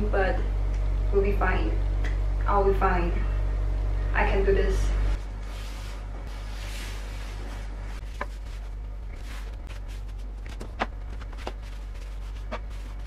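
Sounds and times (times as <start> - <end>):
steady low hum: 0.0 - 13.0
cloth wiping shelf: 5.2 - 13.0.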